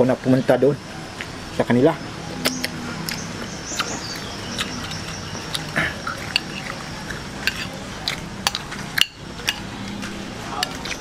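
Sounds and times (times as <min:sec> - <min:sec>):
eating mouth sounds: 0:02.4 - 0:11.0
spoon scraping ceramic plates: 0:03.9 - 0:11.0.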